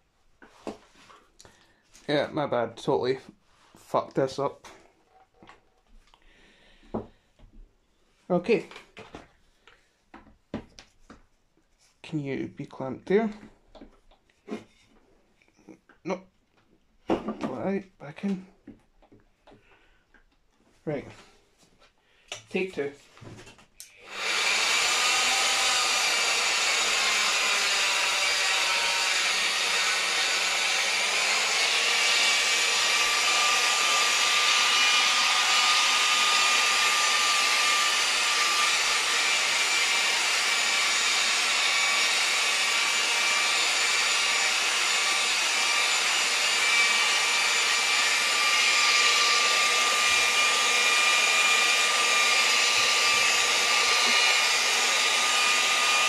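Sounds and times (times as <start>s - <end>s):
electric polisher motor whine: 24.0s - 56.0s.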